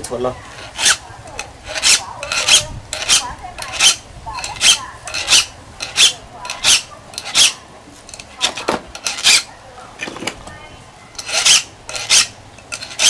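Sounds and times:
file rasping on saw teeth: 0:00.6 - 0:01.0, 0:01.6 - 0:07.6, 0:11.2 - 0:13.0.

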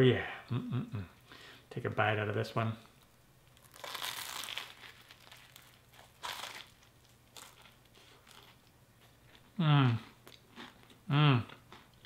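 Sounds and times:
toast crunching: 0:03.4 - 0:11.0.

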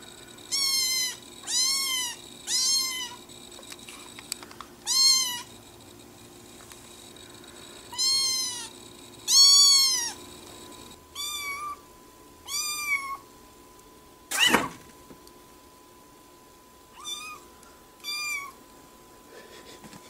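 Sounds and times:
kitten meowing: 0:00.5 - 0:03.2, 0:04.8 - 0:05.5, 0:07.9 - 0:08.7, 0:09.3 - 0:10.2, 0:11.2 - 0:11.8, 0:12.5 - 0:13.2, 0:17.0 - 0:17.4, 0:18.0 - 0:18.6.

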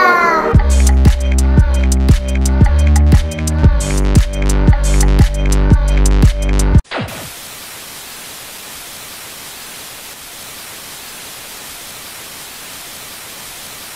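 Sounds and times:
electronic dance music: 0:00.4 - 0:07.3
tv static hiss: 0:06.9 - 0:13.9.

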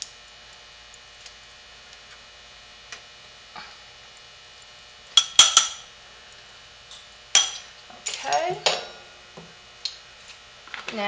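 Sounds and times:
faint steady hum: 0:00.0 - 0:11.0
bright clinks on a glass bowl: 0:05.2 - 0:05.9, 0:07.4 - 0:07.7.

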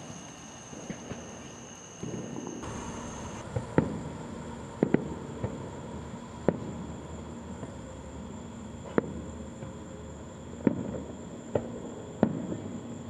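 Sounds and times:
insects trilling: 0:00.0 - 0:13.0
fireworks popping and banging: 0:04.8 - 0:05.7, 0:10.6 - 0:12.8.

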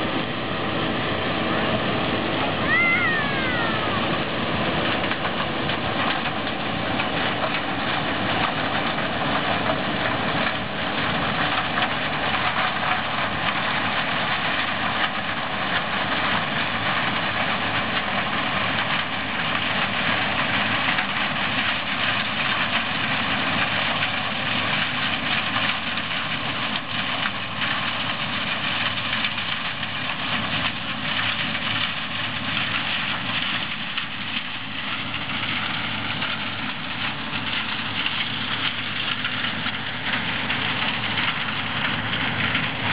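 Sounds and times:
combine harvester running: 0:00.0 - 0:42.9.

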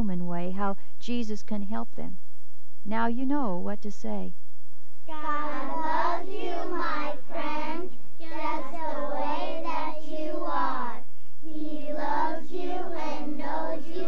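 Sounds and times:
children singing together: 0:05.1 - 0:14.0.

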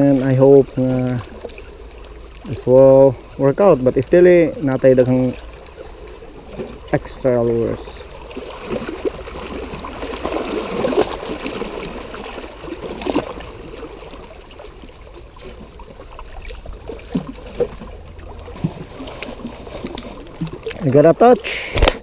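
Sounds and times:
waves washing over rocks: 0:02.5 - 0:22.0.

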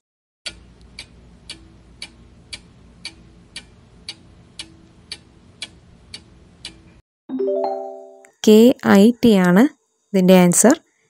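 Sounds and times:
clock ticking: 0:00.5 - 0:06.8.

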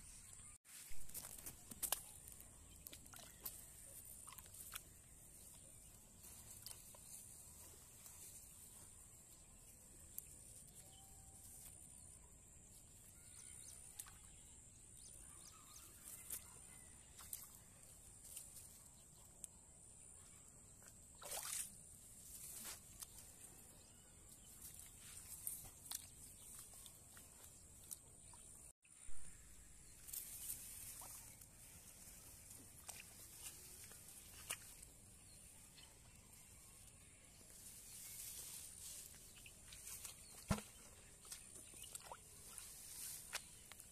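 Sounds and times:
hands working in wet mud: 0:00.8 - 0:11.0, 0:20.8 - 0:28.7, 0:30.2 - 0:35.9, 0:38.0 - 0:43.9.

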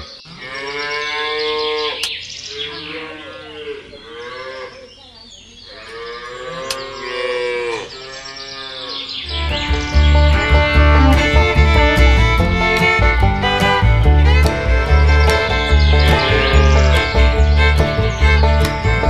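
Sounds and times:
cow mooing: 0:00.4 - 0:04.9, 0:05.7 - 0:09.1, 0:15.7 - 0:17.4.

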